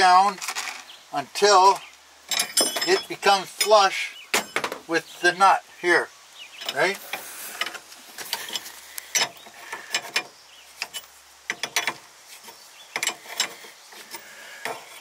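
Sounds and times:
metallic clicks and scraping: 6.6s - 15.0s.

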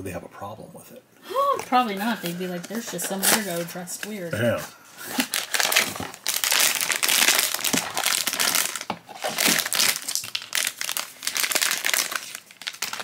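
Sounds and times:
packaging crinkling: 5.0s - 13.0s.

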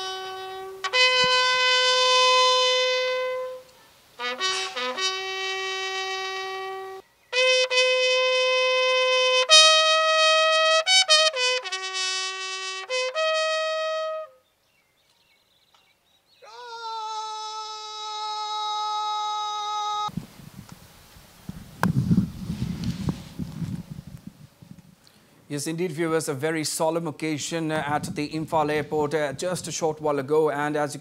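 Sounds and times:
bugle call: 0.0s - 14.4s
outdoor background noise: 0.0s - 31.0s.

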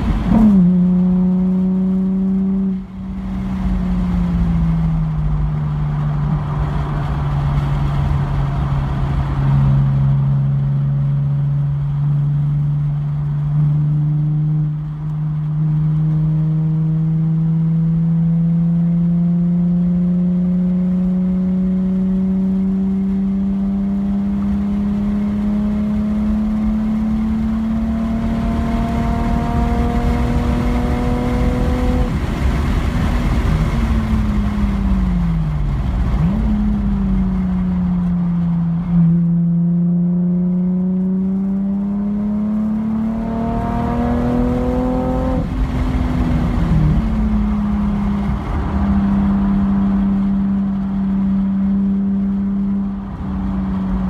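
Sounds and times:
road and tyre rumble: 0.0s - 54.0s
race car engine revving: 15.7s - 54.0s.

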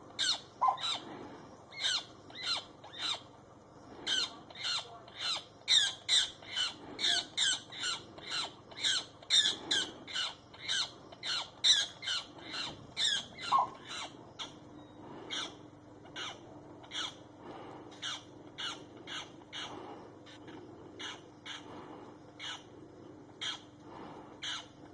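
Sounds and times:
bird shrill cries: 4.1s - 14.5s.

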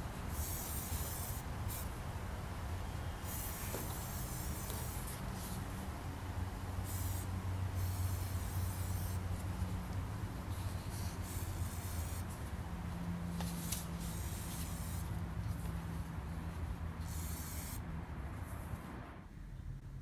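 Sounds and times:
low hum of city noise: 0.0s - 20.0s
aerosol spray can hissing: 0.3s - 1.9s, 3.2s - 5.1s.

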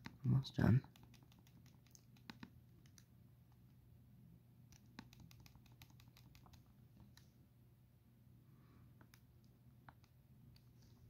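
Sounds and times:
calculator keys clicking: 0.8s - 3.0s, 4.9s - 6.7s.

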